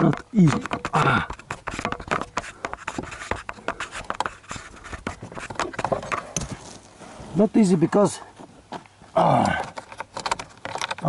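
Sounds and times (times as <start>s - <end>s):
fingers scraping on plastic: 0.0s - 6.6s.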